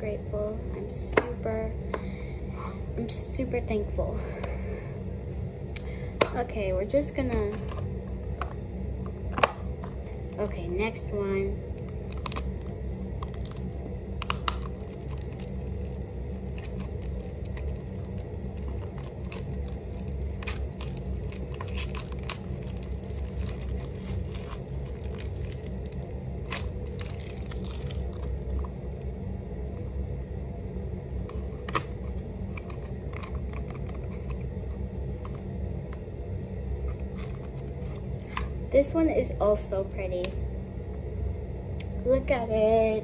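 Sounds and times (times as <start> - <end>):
steady low hum: 0.0 - 43.0
packaging crinkling and clicking: 11.8 - 28.7.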